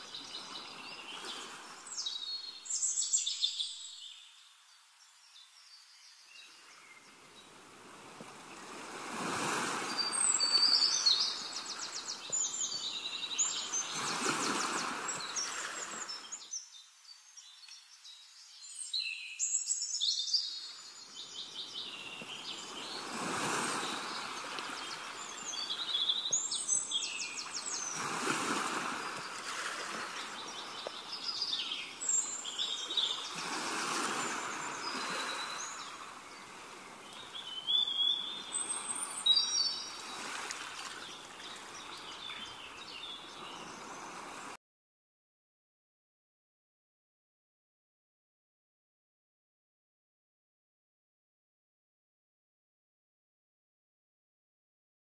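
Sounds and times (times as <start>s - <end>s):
songbirds chirping and trilling: 0.0s - 44.6s
running water: 22.2s - 44.6s.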